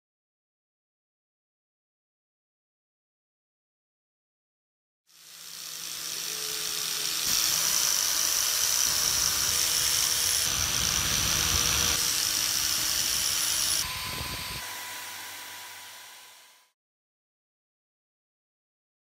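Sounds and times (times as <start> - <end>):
wire brush power tool whirring: 5.1 - 16.8.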